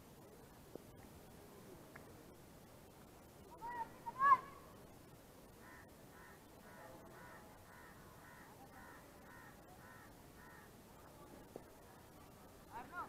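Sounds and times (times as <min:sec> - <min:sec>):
faint crow cawing: 0:05.5 - 0:10.8.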